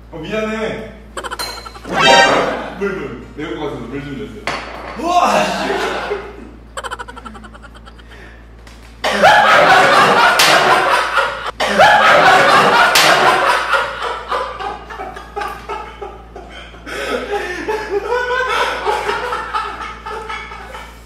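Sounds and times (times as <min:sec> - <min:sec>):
young men laughing: 0:05.4 - 0:08.3, 0:09.0 - 0:21.0.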